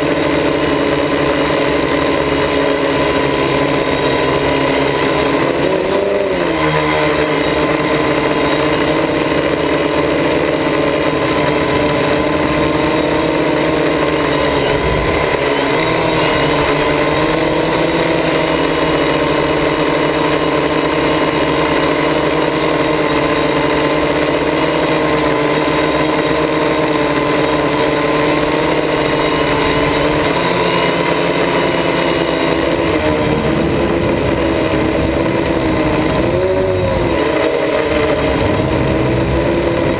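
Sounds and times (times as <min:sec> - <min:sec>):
drone motors whirring: 0:00.0 - 0:39.9.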